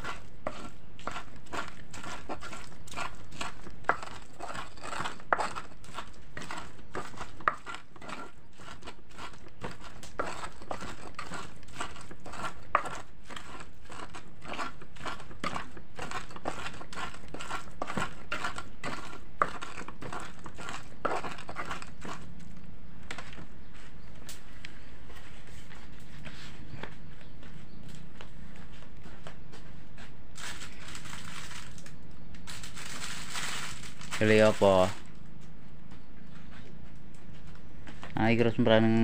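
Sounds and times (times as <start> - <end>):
pestle knocking against mortar: 0.0 - 22.2
stone pestle grinding in mortar: 0.0 - 23.8.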